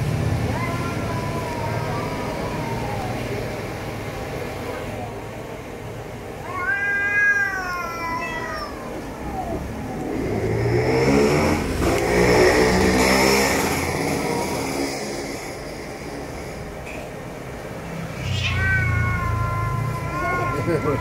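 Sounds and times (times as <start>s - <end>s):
cat yowling: 0.4s - 3.7s, 6.4s - 10.7s, 18.1s - 21.0s
vehicle engine passing: 9.0s - 21.0s.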